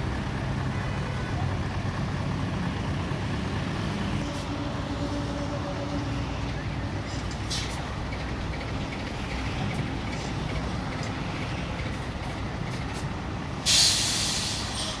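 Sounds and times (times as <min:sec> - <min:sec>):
truck diesel engine idling: 0:00.0 - 0:15.0
air brakes hissing: 0:07.3 - 0:07.9, 0:13.6 - 0:15.0.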